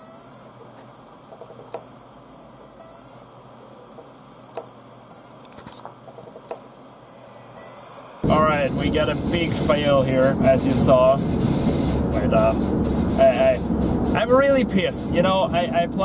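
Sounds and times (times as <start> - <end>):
keyboard typing: 0.8 - 1.9, 3.6 - 4.7, 5.4 - 6.7
steady hiss: 6.7 - 16.0.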